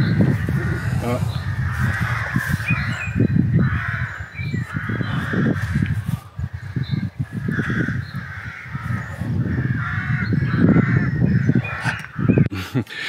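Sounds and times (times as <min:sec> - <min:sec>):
low rumbling noise: 0:00.0 - 0:12.5
birds calling: 0:00.0 - 0:13.0.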